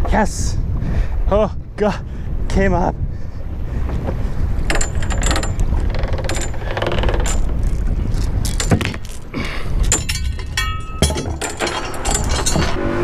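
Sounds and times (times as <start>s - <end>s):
wind rumble on microphone: 0.0s - 13.0s
anchor chain clinking and rattling: 4.6s - 12.8s
ringing metal clank: 9.9s - 12.8s.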